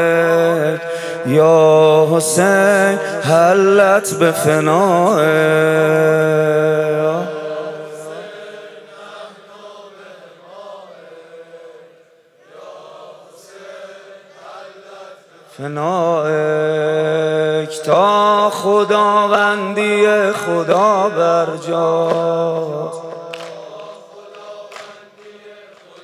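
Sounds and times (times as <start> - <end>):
man singing over a microphone: 0.0 - 8.2, 15.5 - 24.1.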